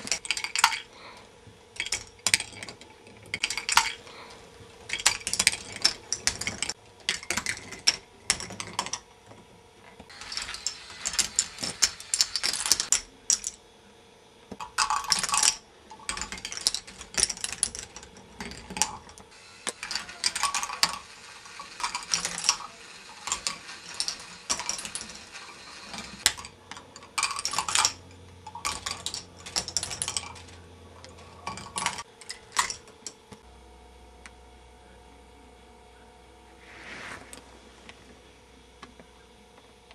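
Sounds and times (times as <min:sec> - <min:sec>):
plastic balls clicking and rattling: 0:00.0 - 0:00.9, 0:01.8 - 0:04.1, 0:04.8 - 0:09.1, 0:10.0 - 0:13.6, 0:14.5 - 0:33.4
faint steady hum: 0:00.0 - 0:39.9.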